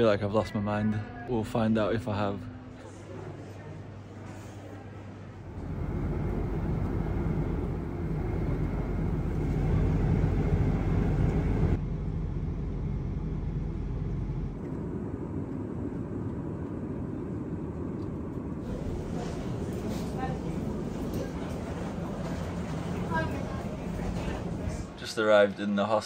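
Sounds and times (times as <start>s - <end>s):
airliner cabin engine rumble: 5.5s - 25.2s.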